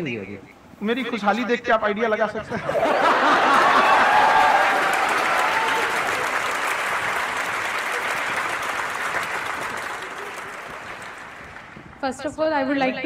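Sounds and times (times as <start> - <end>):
audience laughing: 2.4 - 7.0
audience applauding: 2.8 - 12.0.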